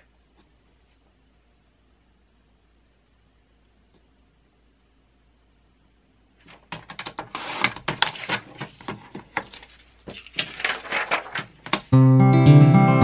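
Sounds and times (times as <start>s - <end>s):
paper pages moved: 7.2s - 11.9s
acoustic guitar music: 11.9s - 13.0s.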